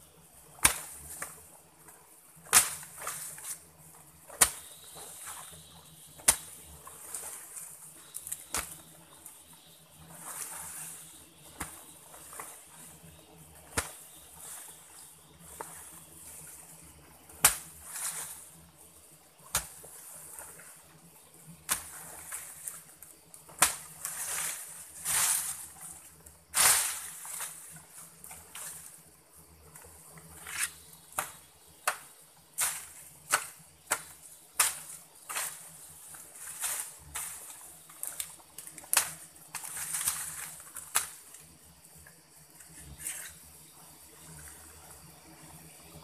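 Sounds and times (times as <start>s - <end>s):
leaves rustling: 0.0s - 46.0s
stick jabbing into dry soil: 0.5s - 1.4s, 2.4s - 3.6s, 4.3s - 5.4s, 6.2s - 6.6s, 8.1s - 8.9s, 11.5s - 12.5s, 13.7s - 14.2s, 17.4s - 18.4s, 19.5s - 20.0s, 21.6s - 22.8s, 23.5s - 24.2s, 30.4s - 35.8s.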